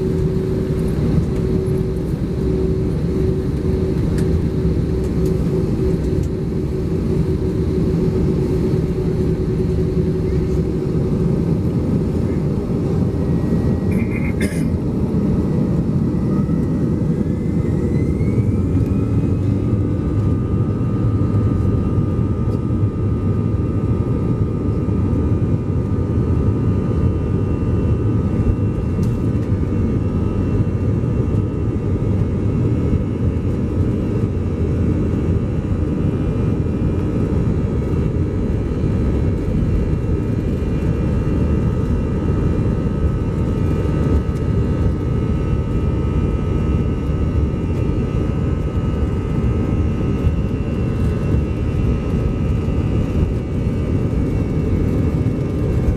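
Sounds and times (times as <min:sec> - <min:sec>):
aircraft cabin low rumble: 0:00.0 - 0:55.9
jet engine whine: 0:00.0 - 0:55.9.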